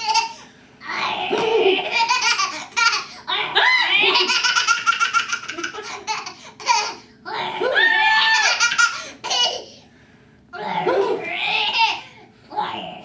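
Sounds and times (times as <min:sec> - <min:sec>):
toddler girl laughing: 0:00.0 - 0:00.4, 0:01.3 - 0:07.0, 0:08.2 - 0:09.7.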